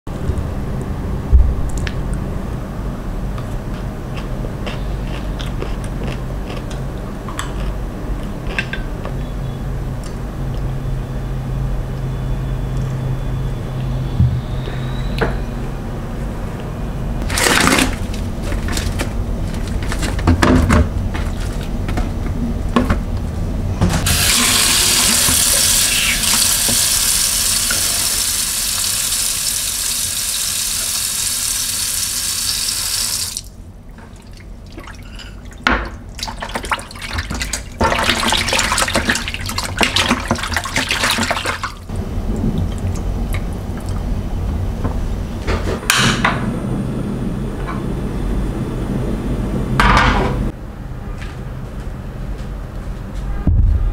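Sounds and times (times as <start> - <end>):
water splashing while washing meat: 17.2 - 18.6, 24.0 - 33.5, 34.1 - 41.9
tap water running into bowl: 24.1 - 33.5, 36.2 - 41.8.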